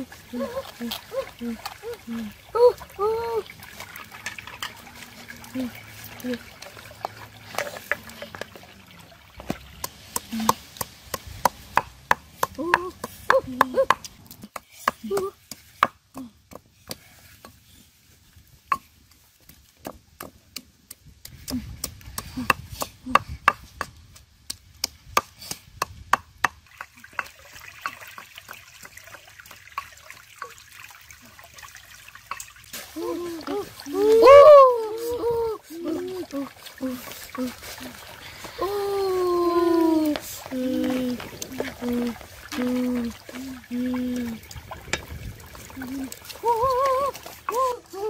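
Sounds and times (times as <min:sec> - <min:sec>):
pestle pounding in stone mortar: 0:09.4 - 0:17.0, 0:19.5 - 0:29.2.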